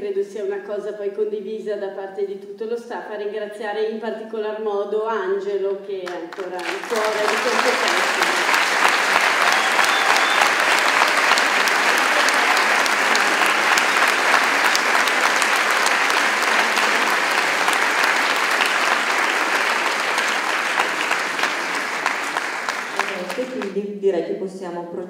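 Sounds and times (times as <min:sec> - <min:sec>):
audience applauding: 0:06.3 - 0:23.8.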